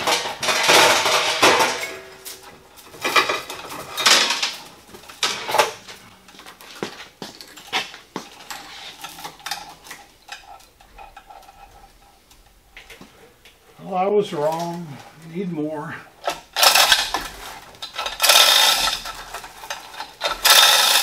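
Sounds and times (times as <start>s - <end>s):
hoist chain rattling and clinking: 16.2s - 21.0s.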